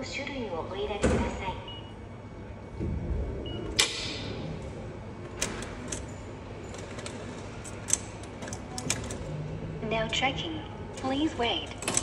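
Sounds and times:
steady background hum: 0:00.0 - 0:12.0
ticket machine clicks and clacks: 0:05.3 - 0:09.3, 0:11.0 - 0:12.0.

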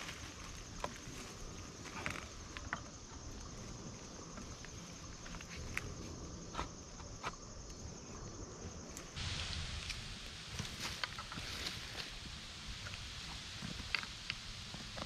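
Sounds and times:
insects chirring: 0:00.0 - 0:15.0
loud hiss: 0:08.9 - 0:15.0.

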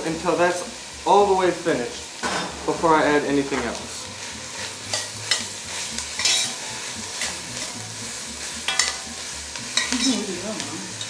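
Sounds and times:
chicken sizzling in pan: 0:00.0 - 0:11.0
utensil scraping pan: 0:03.5 - 0:10.3.

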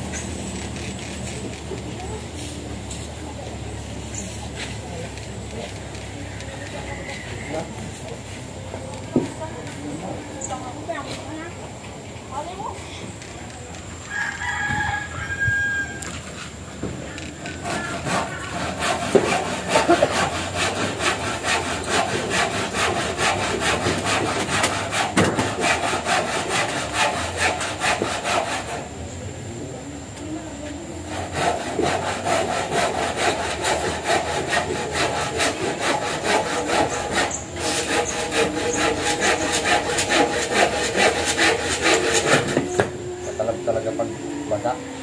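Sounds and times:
handsaw cutting wood: 0:17.4 - 0:29.0, 0:31.1 - 0:42.9.

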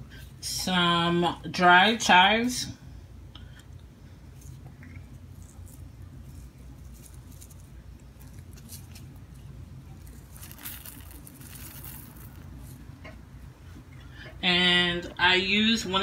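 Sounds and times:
steady low hum: 0:00.0 - 0:16.0
dried flakes pattering into pan: 0:10.0 - 0:12.7.

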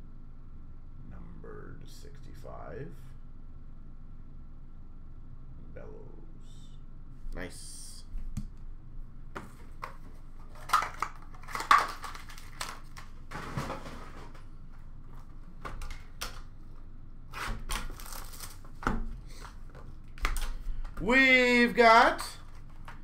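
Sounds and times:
cardboard packaging rustling: 0:09.6 - 0:16.3, 0:17.4 - 0:20.5.

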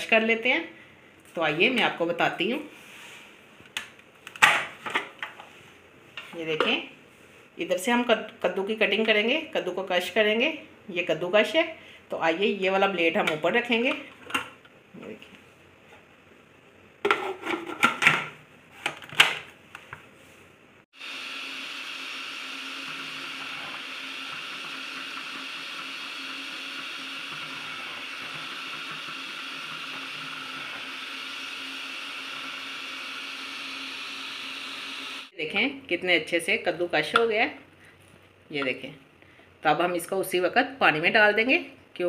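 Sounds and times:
food processor motor running: 0:21.0 - 0:35.3.

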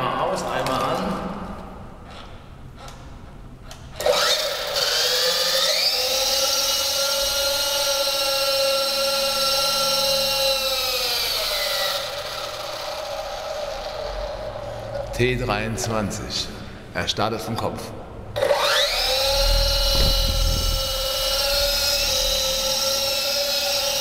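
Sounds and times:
rc helicopter motor whining: 0:04.0 - 0:14.6, 0:18.4 - 0:24.0.

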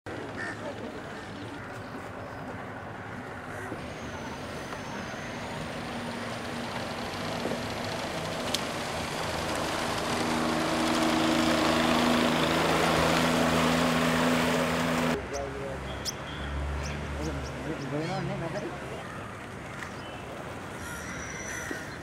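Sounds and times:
engine humming: 0:00.1 - 0:21.6.

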